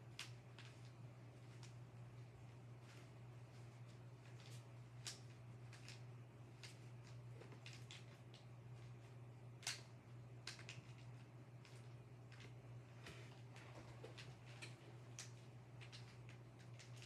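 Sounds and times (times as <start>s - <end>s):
steady low hum: 0.0s - 17.0s
puzzle cube plastic clicks: 9.6s - 12.5s.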